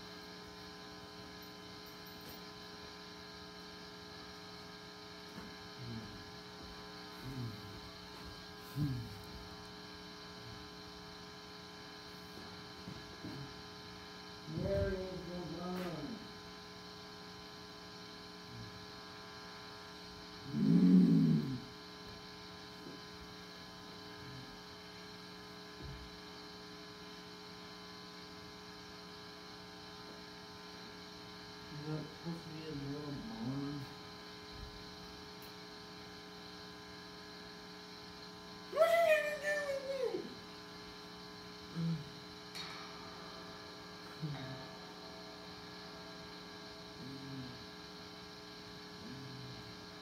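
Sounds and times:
electrical mains hum: 0:00.0 - 0:50.0
man vocalizing: 0:05.8 - 0:06.2, 0:07.2 - 0:07.7, 0:08.7 - 0:09.2, 0:38.8 - 0:40.3, 0:41.8 - 0:42.2, 0:44.2 - 0:44.7, 0:47.0 - 0:47.6, 0:49.0 - 0:49.7
man crying out: 0:38.7 - 0:40.4.

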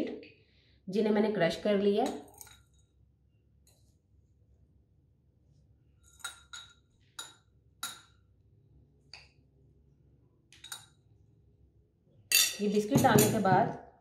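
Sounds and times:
metal spoon clinking against dish: 0:12.3 - 0:13.5.

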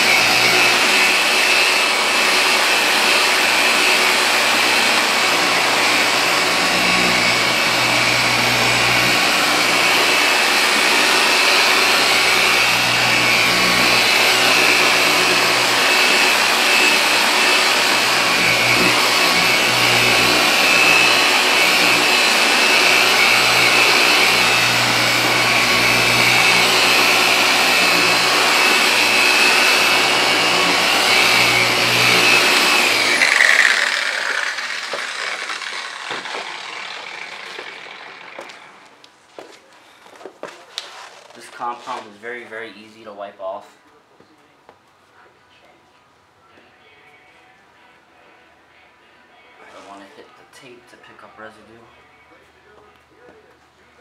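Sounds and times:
car polisher motor whine: 0:00.0 - 0:39.0.

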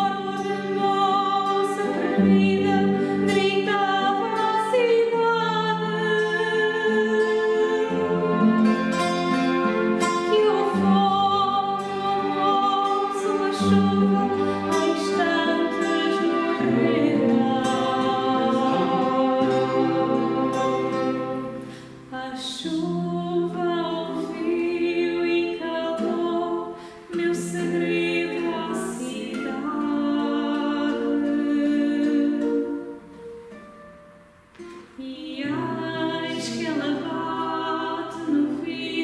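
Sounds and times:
woman singing: 0:00.0 - 0:09.1, 0:10.0 - 0:33.1, 0:34.9 - 0:39.0
guitars: 0:00.0 - 0:39.0
violin: 0:00.0 - 0:39.0.

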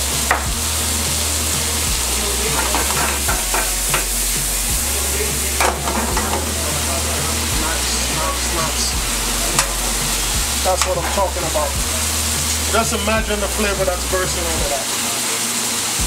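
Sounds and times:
steak sizzling in a pan: 0:00.0 - 0:16.0
pan and utensil clicks and scrapes: 0:02.5 - 0:04.2, 0:09.6 - 0:09.8.

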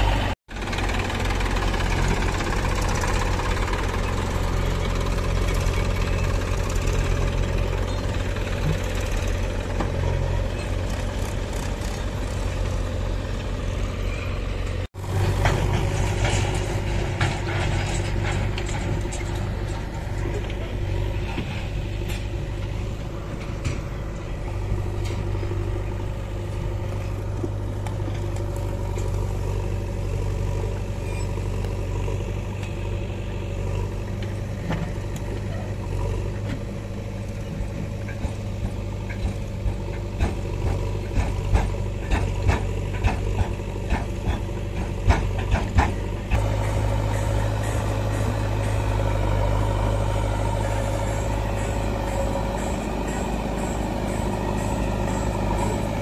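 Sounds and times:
tractor diesel engine running: 0:00.0 - 0:56.0
knocks and clatter: 0:15.1 - 0:25.6, 0:37.7 - 0:49.6.

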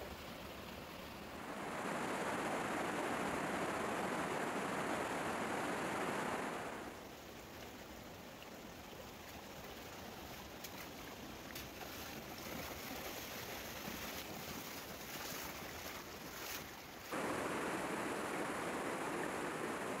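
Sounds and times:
stream rushing over stones: 0:06.9 - 0:18.2
person wading through water: 0:09.7 - 0:17.1.

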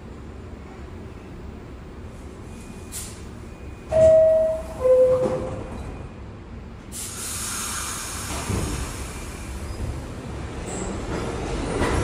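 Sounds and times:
two-tone door chime: 0:03.9 - 0:05.6
steady train hiss: 0:06.8 - 0:09.9.

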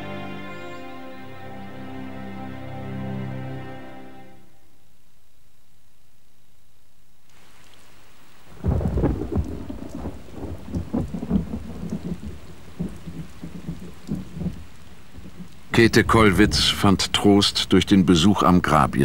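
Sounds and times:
rain falling: 0:05.0 - 0:19.0
rolling thunder: 0:08.5 - 0:17.9.

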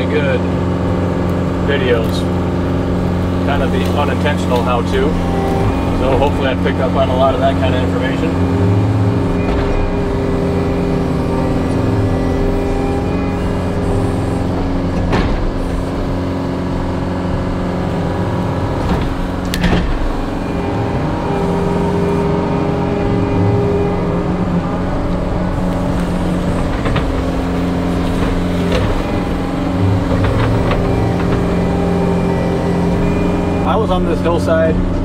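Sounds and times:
diesel engine running: 0:00.0 - 0:35.0
sharp knocks: 0:08.4 - 0:16.2, 0:18.4 - 0:21.8.

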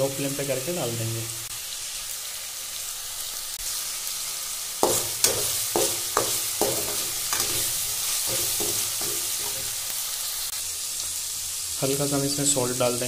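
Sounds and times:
onions sizzling in hot oil: 0:00.0 - 0:13.0
metal spatula scraping pan: 0:04.8 - 0:09.9.

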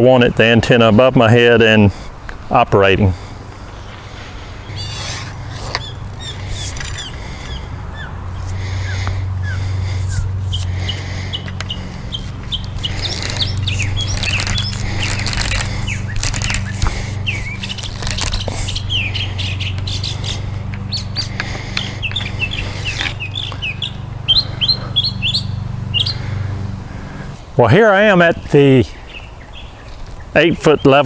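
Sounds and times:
steady low hum: 0:01.8 - 0:27.6
small birds chirping: 0:04.6 - 0:27.4, 0:28.0 - 0:31.0.

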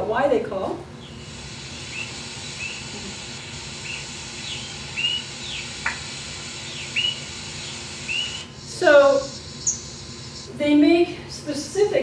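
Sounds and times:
recorder hiss: 0:00.9 - 0:12.0
high bird chirps: 0:01.0 - 0:10.6.

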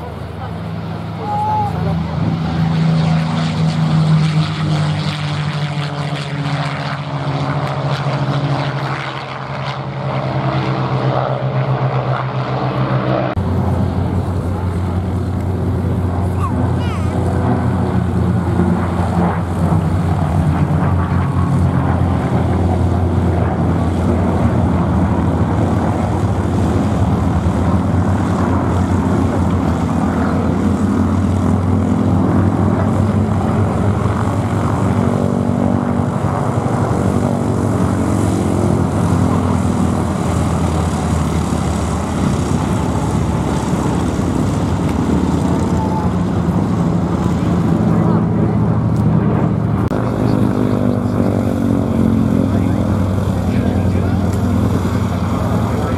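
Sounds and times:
propeller plane engines droning: 0:00.0 - 0:55.9.

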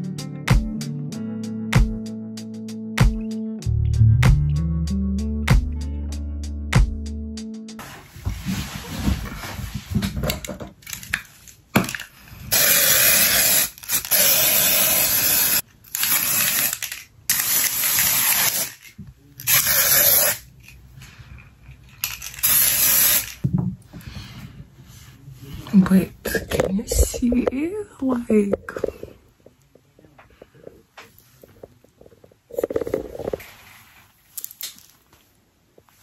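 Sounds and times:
handling knocks and clicks: 0:09.9 - 0:12.1
aerosol spray can hissing: 0:12.5 - 0:16.8, 0:17.4 - 0:18.8, 0:19.5 - 0:20.4, 0:22.4 - 0:23.4.

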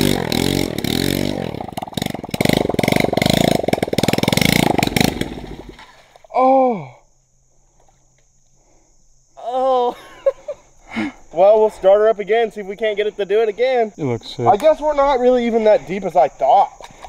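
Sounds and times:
pit bike engine sputtering and stalling: 0:00.0 - 0:06.1
person exclaiming: 0:06.3 - 0:07.0, 0:09.4 - 0:10.4.

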